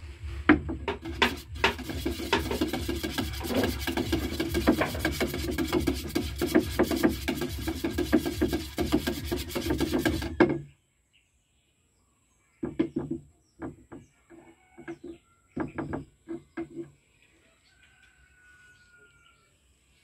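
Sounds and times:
paintbrush rasping strokes: 0:00.0 - 0:10.4
stick scraping paint can: 0:00.5 - 0:10.6.

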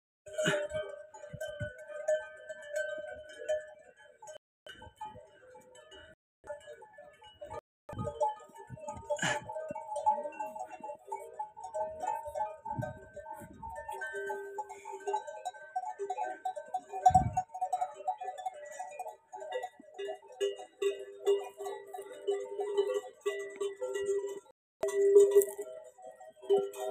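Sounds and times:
camel neck bells clanking: 0:00.2 - 0:26.9.

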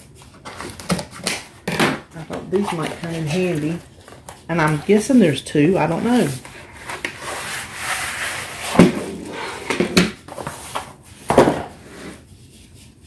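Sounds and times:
bamboo dividers scraping cardboard: 0:02.2 - 0:05.2, 0:05.9 - 0:10.9.

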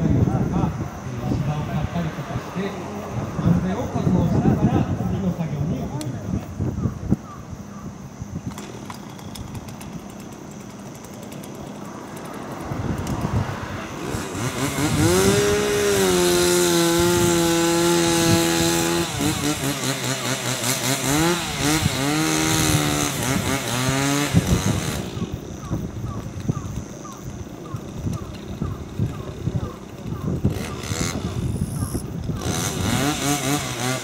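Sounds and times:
chainsaw revving and cutting: 0:08.6 - 0:25.6, 0:27.6 - 0:34.0.

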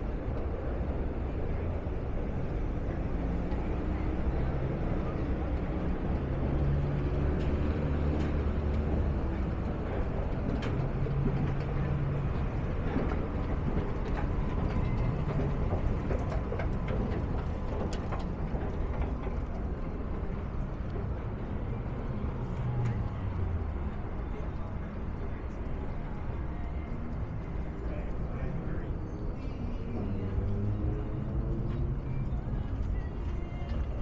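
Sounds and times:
low engine hum: 0:00.0 - 0:34.0
vehicles passing: 0:00.0 - 0:34.0.

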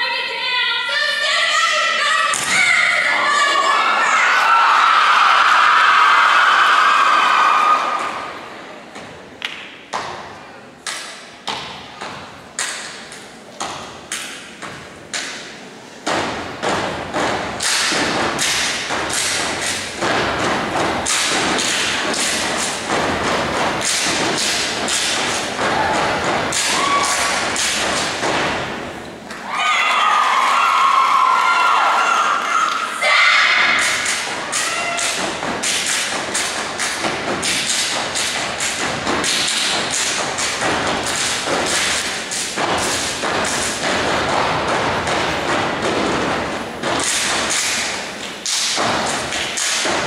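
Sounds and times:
crowd cheering: 0:03.1 - 0:08.6, 0:25.5 - 0:27.7, 0:29.3 - 0:35.5
stomping and clapping on wooden stage: 0:04.2 - 0:50.0.

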